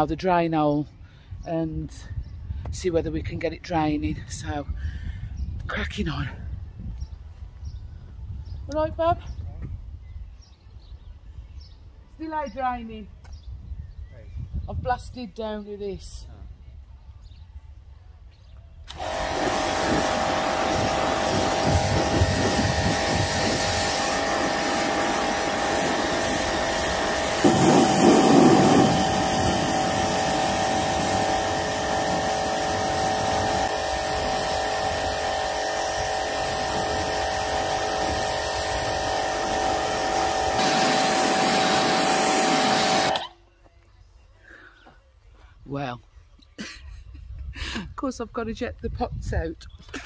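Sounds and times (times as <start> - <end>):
water jet hissing: 18.9 - 43.2
pressure washer motor whine: 18.9 - 43.3.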